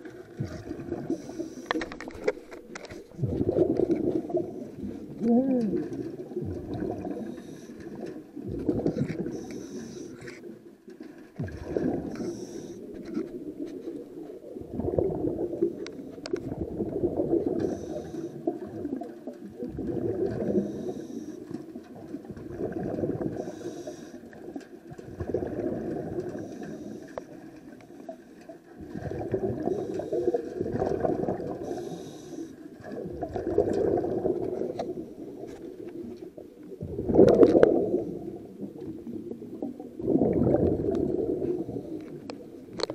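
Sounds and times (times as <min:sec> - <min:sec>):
gurgle of exhaled bubbles: 0:00.0 - 0:10.7, 0:11.4 - 0:28.2, 0:28.8 - 0:42.9
regulator inhale hiss: 0:01.1 - 0:01.8, 0:07.2 - 0:08.0, 0:09.2 - 0:10.4, 0:12.1 - 0:13.1, 0:17.5 - 0:18.5, 0:20.6 - 0:21.5, 0:23.4 - 0:24.3, 0:26.3 - 0:27.4, 0:29.7 - 0:30.4, 0:31.6 - 0:32.7.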